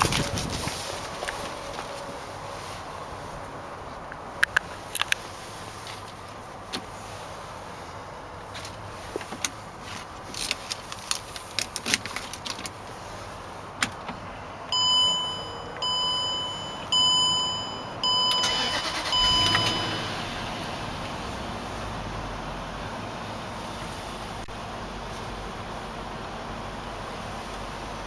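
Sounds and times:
car engine starting and idling: 0.0s - 28.0s
electronic warning chime: 14.7s - 20.2s.

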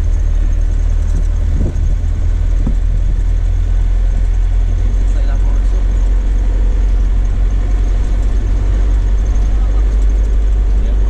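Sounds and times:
van engine and road noise: 0.0s - 11.0s
wind on microphone: 1.0s - 3.5s.

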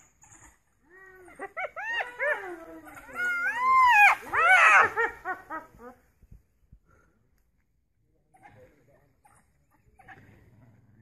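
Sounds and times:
wild dogs and hyena yelping: 0.0s - 6.1s.

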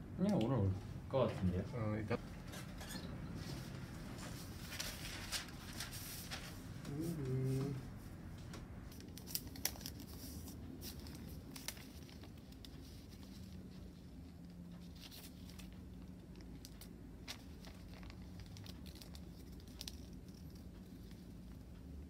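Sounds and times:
faint low hum: 0.0s - 22.0s
paper crinkling and rustling: 3.4s - 7.8s, 8.5s - 21.3s.

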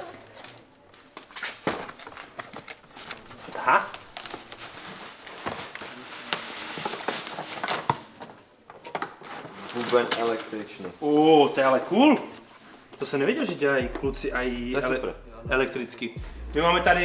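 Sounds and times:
plastic bag crinkling: 0.0s - 8.2s, 9.2s - 12.4s.

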